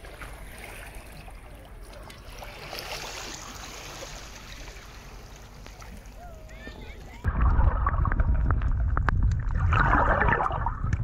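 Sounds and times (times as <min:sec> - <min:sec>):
sea water lapping: 0:00.0 - 0:08.2.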